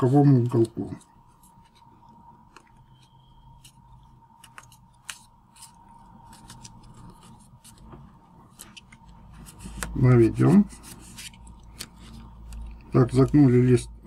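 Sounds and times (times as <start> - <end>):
paper being folded and creased: 0.2 - 13.9.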